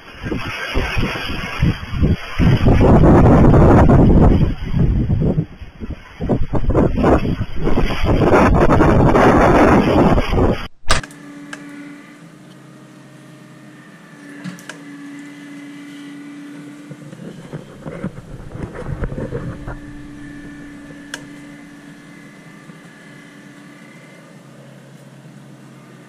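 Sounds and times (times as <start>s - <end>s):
motor hum: 0.0s - 26.0s
pitched drone: 0.0s - 26.0s
loud uneven noise: 13.8s - 26.0s.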